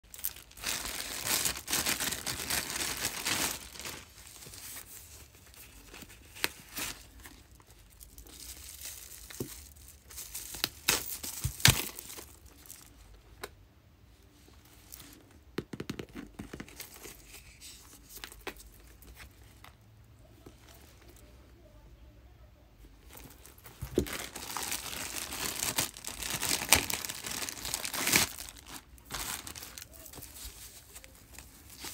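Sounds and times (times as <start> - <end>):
plastic wrapping crinkling: 0.0 - 13.2, 23.0 - 31.9.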